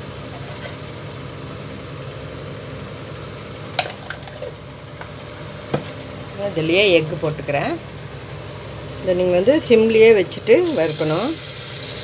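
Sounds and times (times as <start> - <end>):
hot oil sizzling in a pan: 10.6 - 12.0.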